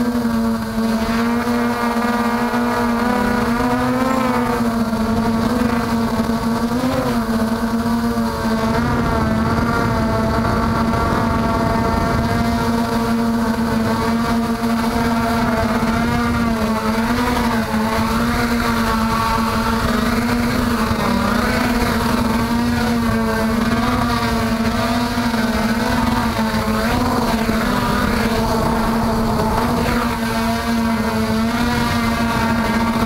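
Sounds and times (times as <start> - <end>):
quadcopter motors humming: 0.0 - 33.0.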